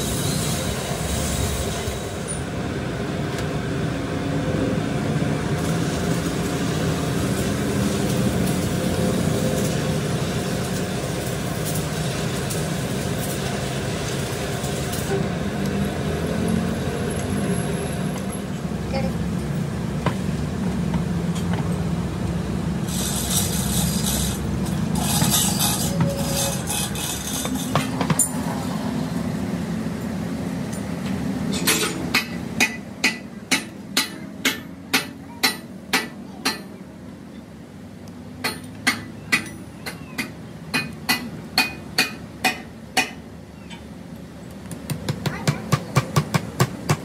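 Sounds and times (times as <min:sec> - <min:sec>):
hammer striking steel: 0:31.5 - 0:36.8, 0:38.4 - 0:43.2.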